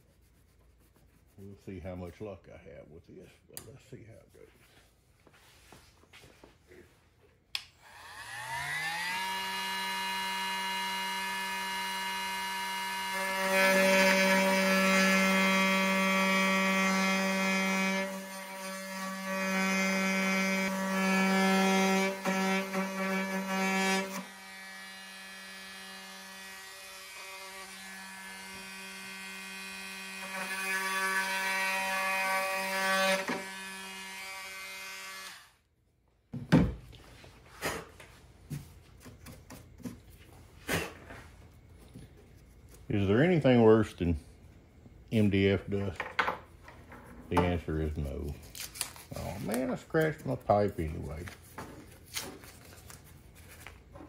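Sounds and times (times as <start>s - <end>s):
oscillating multi-tool cutting: 7.8s - 35.5s.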